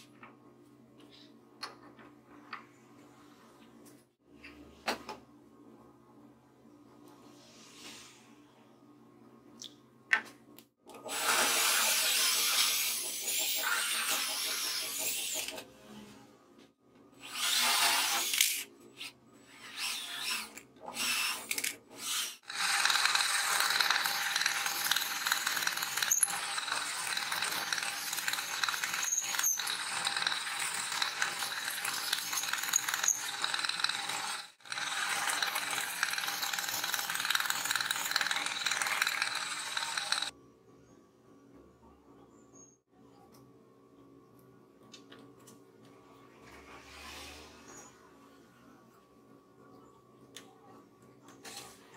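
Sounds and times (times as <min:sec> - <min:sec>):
drill press boring through wood: 0:22.4 - 0:40.3.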